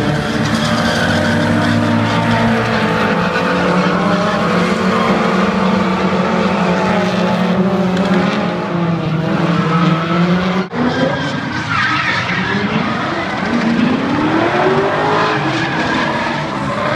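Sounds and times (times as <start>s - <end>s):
car engines revving: 0.0s - 16.9s.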